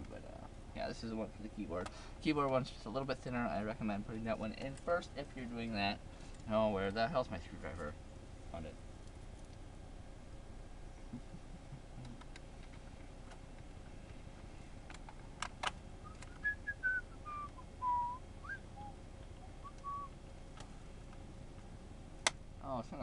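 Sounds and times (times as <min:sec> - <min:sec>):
person whistling a tune: 0:16.0 - 0:19.0, 0:19.6 - 0:20.1.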